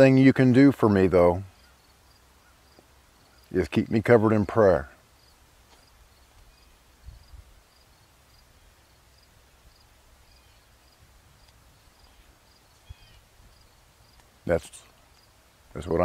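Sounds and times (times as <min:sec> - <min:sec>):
cricket chirping: 0:01.5 - 0:03.5, 0:05.2 - 0:14.2.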